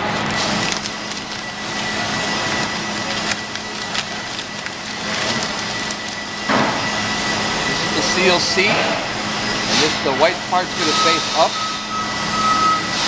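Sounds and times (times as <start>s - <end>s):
steady background hum: 0.0s - 13.0s
paper crinkling and rustling: 0.3s - 8.7s.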